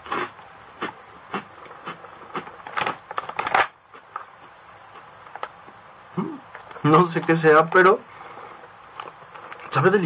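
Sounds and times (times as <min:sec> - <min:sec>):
crunchy snack chewing: 0:00.0 - 0:05.5.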